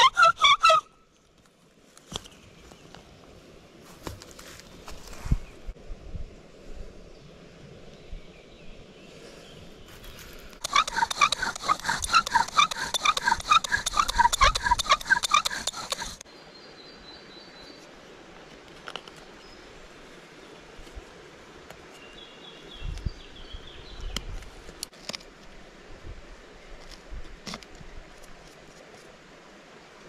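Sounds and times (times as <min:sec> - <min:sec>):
bow drill squeaking: 0:00.0 - 0:00.8, 0:10.6 - 0:16.2.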